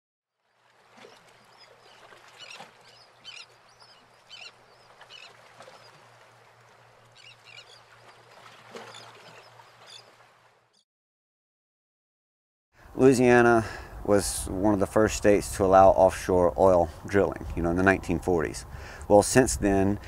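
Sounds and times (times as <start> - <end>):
birds giving short calls: 1.6 - 6.1.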